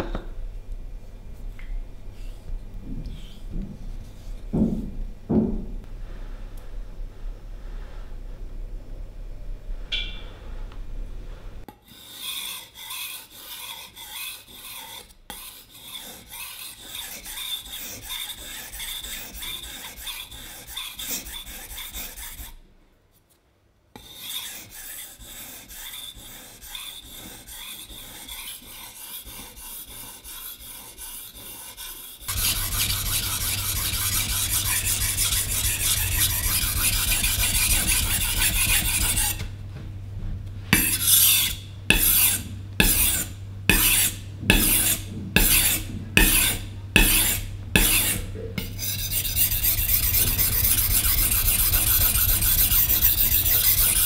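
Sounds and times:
knife rasping on whetstone: 11.8 - 22.6, 24.0 - 39.4, 40.8 - 54.0.

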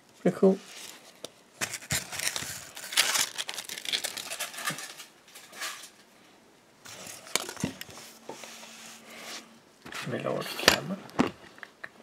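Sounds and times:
rustling and crinkling: 0.6 - 6.1, 6.8 - 10.3.

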